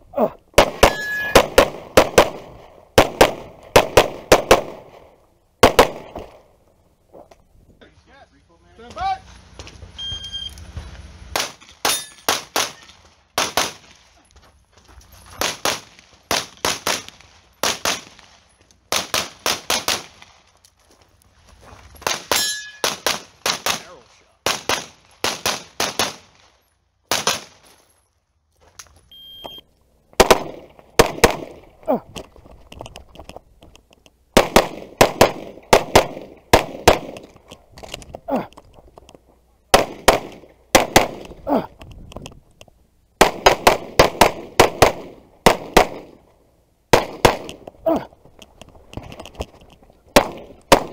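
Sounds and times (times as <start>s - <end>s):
pistol shots: 0.6s - 6.4s, 11.4s - 13.9s, 15.4s - 18.2s, 18.9s - 20.3s, 22.0s - 26.4s, 27.1s - 27.6s, 30.2s - 31.7s, 34.4s - 37.4s, 39.7s - 41.4s, 43.2s - 46.2s, 46.9s - 47.6s, 50.2s - 50.9s
shot timer beep: 10.0s - 10.6s, 29.1s - 29.6s.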